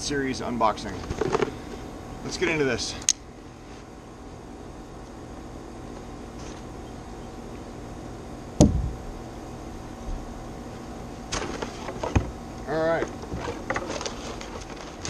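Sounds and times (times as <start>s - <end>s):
steady background hiss: 0.0s - 15.0s
sharp knock: 8.6s - 9.0s.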